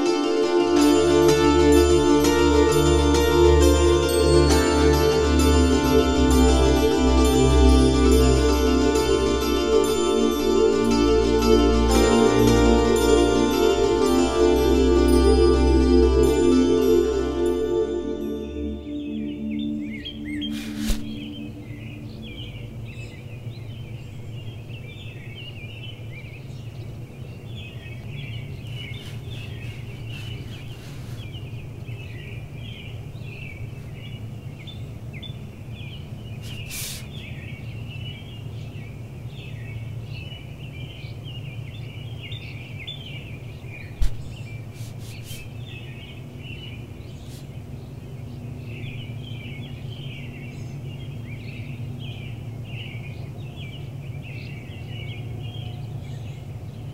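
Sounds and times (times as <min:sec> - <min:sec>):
low background rumble: 0:00.0 - 0:28.9
small birds chirping: 0:18.9 - 0:56.9
loud thump: 0:44.0 - 0:44.3.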